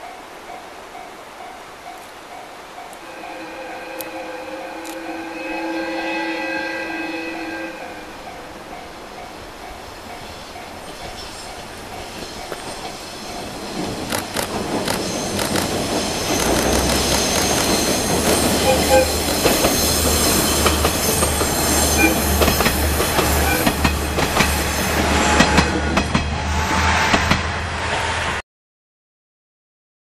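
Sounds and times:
train wheels clacking: 8.3s - 28.0s
diesel engine throb: 14.1s - 19.4s.

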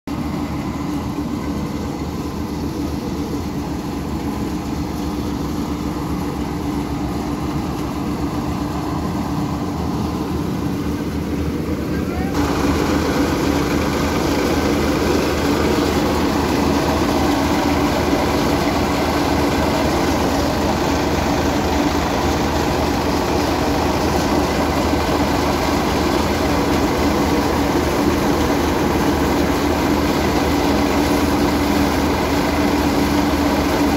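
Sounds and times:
threshing machine droning: 0.1s - 33.9s
tractor diesel engine running: 0.1s - 33.9s.

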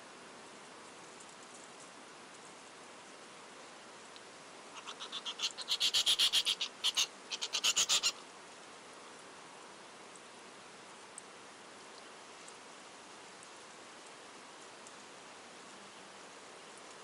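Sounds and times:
animal call high-pitched pulses: 4.8s - 8.2s.

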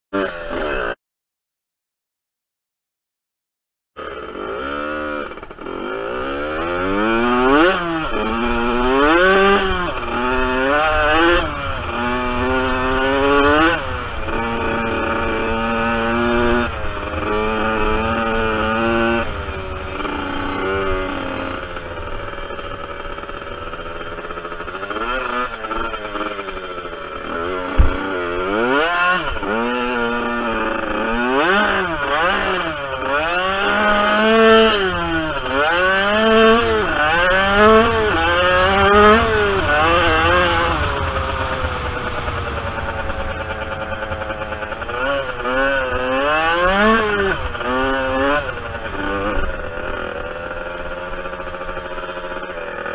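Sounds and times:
dirt bike engine revving: 0.2s - 1.0s, 4.0s - 52.9s
sharp thump: 27.7s - 28.3s.

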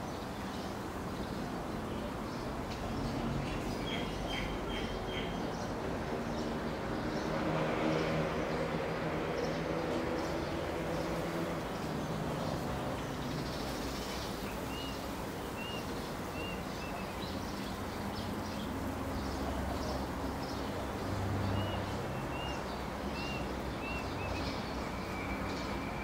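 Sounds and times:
outdoor background noise: 0.0s - 26.0s.

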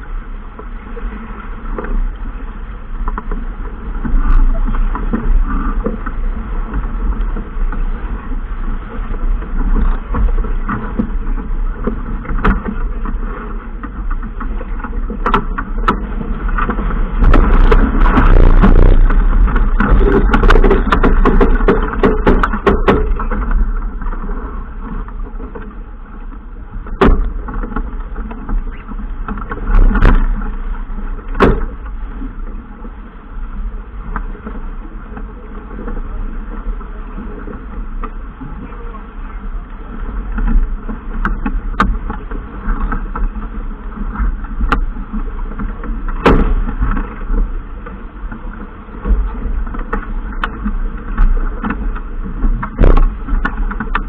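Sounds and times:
water noise: 0.0s - 54.0s
wind rumble on microphone: 0.0s - 54.0s
sharp knocks: 46.2s - 46.7s, 52.8s - 54.0s.

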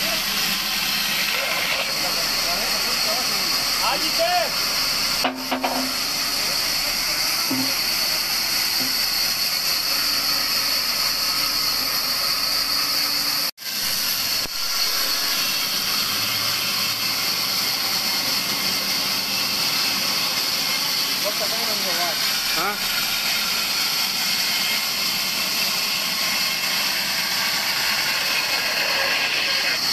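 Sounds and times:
band saw cutting log: 0.0s - 29.9s.

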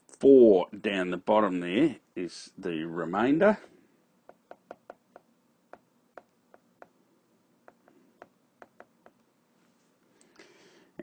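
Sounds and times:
taps on a touchscreen: 4.3s - 7.0s, 7.6s - 9.2s.

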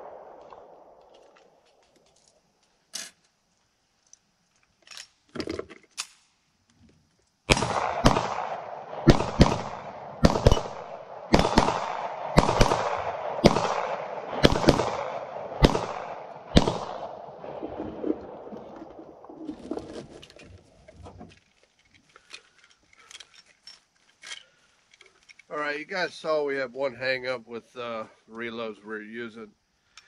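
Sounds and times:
pistol shots with echo: 7.5s - 17.4s.

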